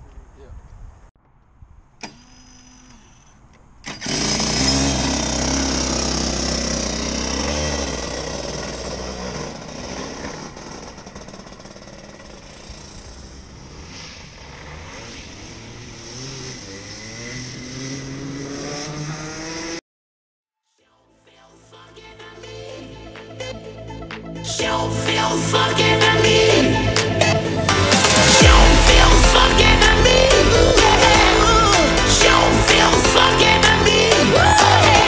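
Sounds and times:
drone motors whining: 2.0s - 6.8s
go-kart engine: 2.0s - 19.8s, 25.1s - 35.0s.

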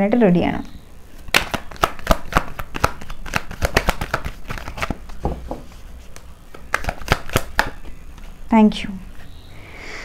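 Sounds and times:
cards being shuffled: 1.1s - 8.3s.

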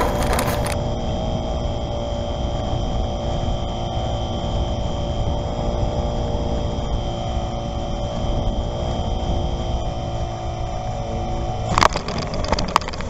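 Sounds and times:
low rumble of taxiing on grass: 0.0s - 0.8s
electric motor and propeller whine: 0.0s - 11.7s.

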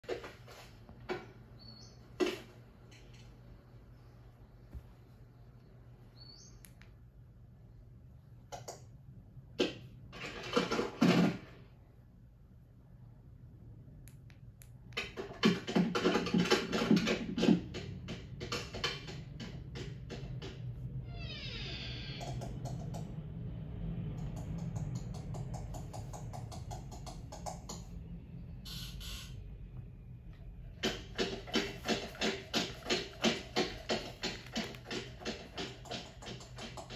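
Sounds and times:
steady low hum: 0.7s - 10.1s, 22.2s - 36.9s
rattling scuffle of plastic toys: 10.1s - 11.6s
heavy marching footsteps: 30.8s - 36.9s.

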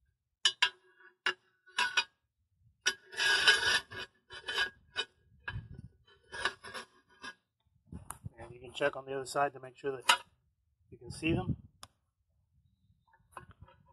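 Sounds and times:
long rasping scrape: 2.9s - 7.4s.

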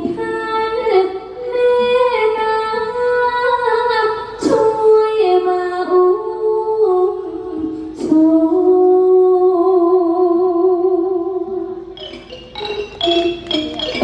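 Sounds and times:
woman singing with vibrato: 0.0s - 13.9s
band with struck percussion: 12.0s - 14.0s.

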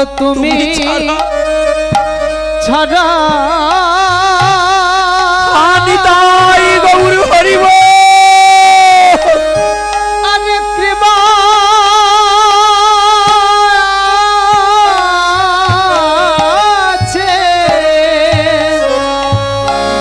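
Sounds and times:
hand drum beating: 0.0s - 2.6s, 3.2s - 4.9s, 14.5s - 20.0s
man singing: 0.0s - 20.0s.

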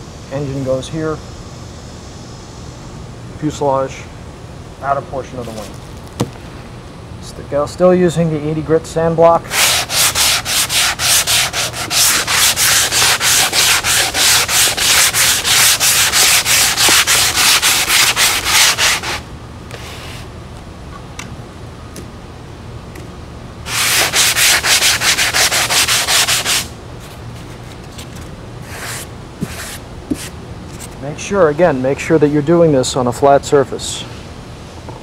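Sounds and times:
sanding block rasping: 9.5s - 19.2s, 23.7s - 26.7s, 28.6s - 30.3s.

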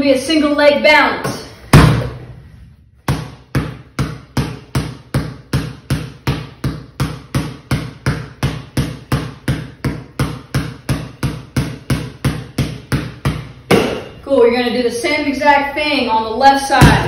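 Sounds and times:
basketball bouncing on concrete: 3.0s - 14.2s, 16.8s - 17.0s.

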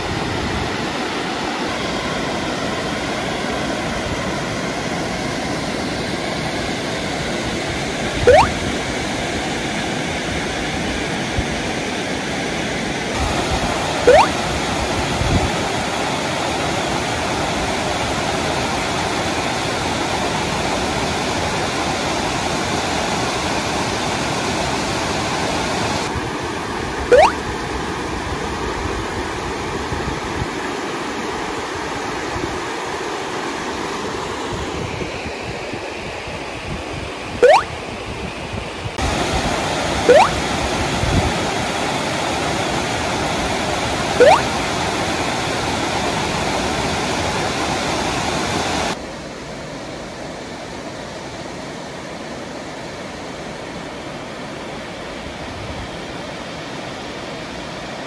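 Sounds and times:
short rising chirps: 8.3s - 8.6s, 14.1s - 14.3s, 27.1s - 27.4s, 37.4s - 37.7s, 40.1s - 40.4s, 44.2s - 44.5s.

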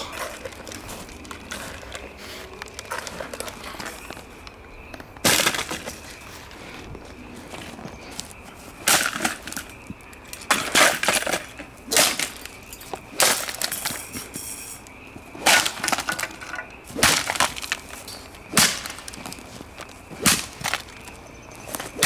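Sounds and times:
plastic fan being smashed: 5.2s - 6.0s, 8.8s - 12.6s, 13.2s - 14.1s, 15.4s - 21.1s.

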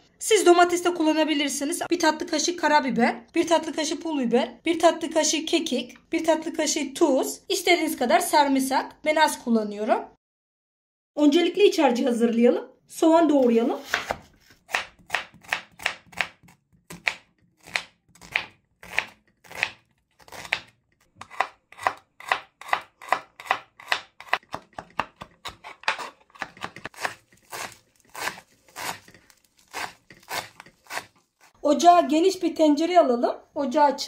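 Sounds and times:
knife chopping on wooden board: 13.8s - 31.2s.

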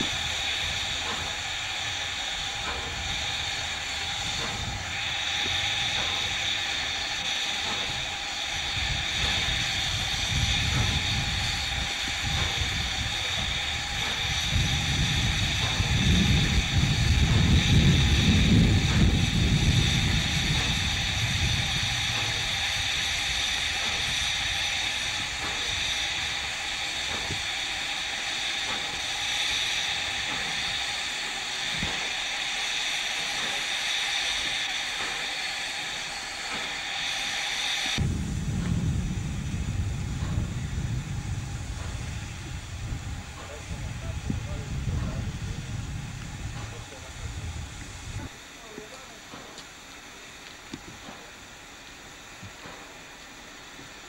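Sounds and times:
steam hissing: 0.0s - 54.0s
low rumble: 38.0s - 48.4s.

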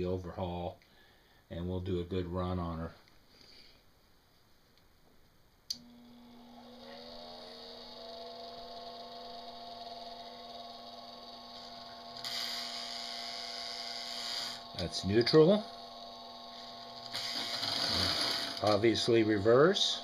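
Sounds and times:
toy train motor humming and whining: 6.2s - 20.0s.

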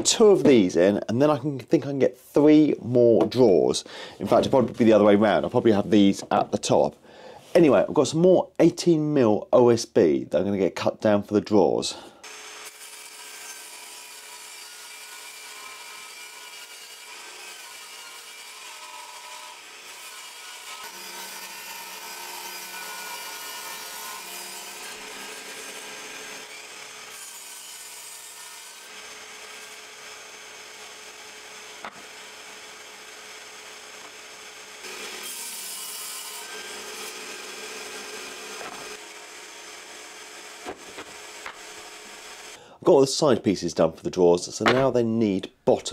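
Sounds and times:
table saw cutting boards: 12.2s - 42.6s, 44.6s - 45.0s.

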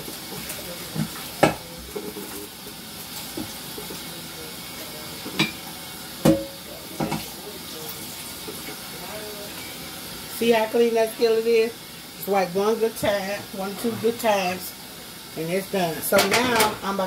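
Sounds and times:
tap water running into a pan: 0.0s - 17.0s
pan knocking: 6.2s - 7.2s.

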